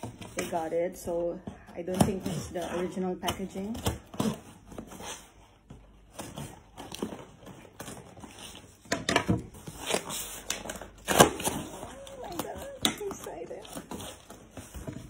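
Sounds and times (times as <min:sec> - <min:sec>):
cardboard flaps scraping and rustling: 0:02.0 - 0:15.0
packing tape peeling: 0:09.6 - 0:14.7.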